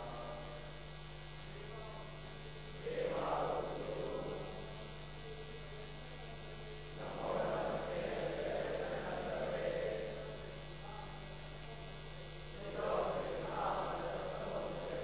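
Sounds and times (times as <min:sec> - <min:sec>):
electrical mains hum: 0:00.0 - 0:15.0
faint voices chanting: 0:01.6 - 0:05.7, 0:06.5 - 0:11.3, 0:12.0 - 0:15.0.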